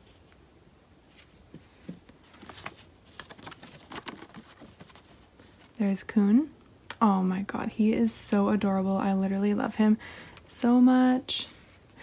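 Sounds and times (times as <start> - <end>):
cardboard and plastic rustling: 1.0 - 5.8.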